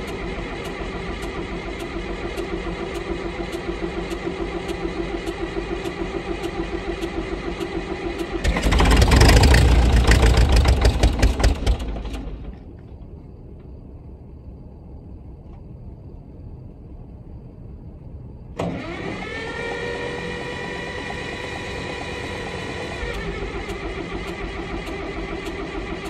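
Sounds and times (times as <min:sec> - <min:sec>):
bulldozer engine running: 0:00.0 - 0:12.8, 0:18.6 - 0:26.0.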